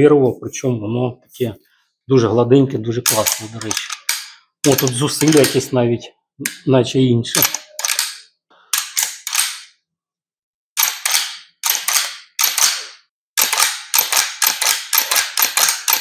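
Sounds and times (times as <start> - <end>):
rifle lever clacking: 3.1 - 5.7, 7.3 - 9.7, 10.8 - 16.0.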